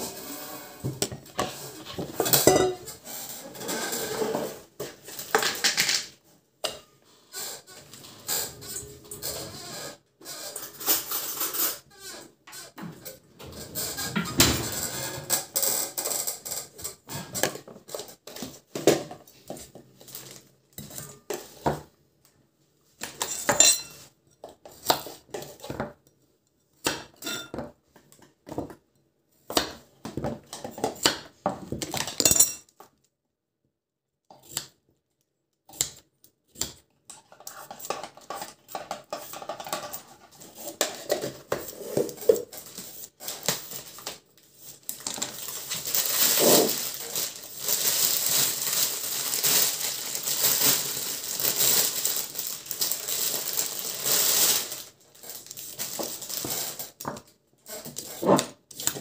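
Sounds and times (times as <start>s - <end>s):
kitchen utensils clinking: 0.0s - 7.0s, 10.4s - 11.9s, 23.0s - 24.8s, 27.0s - 27.7s, 31.9s - 32.7s, 37.1s - 44.2s.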